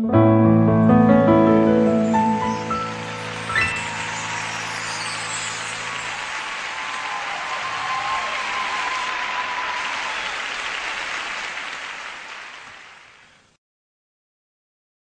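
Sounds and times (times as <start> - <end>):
audience applauding: 2.2 - 13.5.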